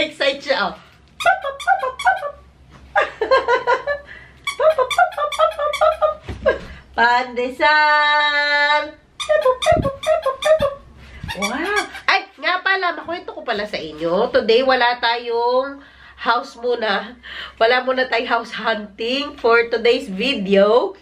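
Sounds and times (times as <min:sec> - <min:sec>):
toy squeaker squeaking: 0:01.2 - 0:02.4, 0:04.4 - 0:06.2, 0:09.2 - 0:12.6
woman talking in sing-song voice: 0:07.0 - 0:09.6.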